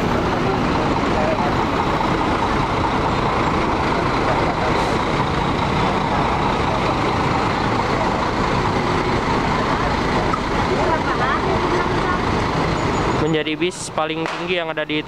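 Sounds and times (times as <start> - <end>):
bus diesel engine running: 0.0 - 15.0.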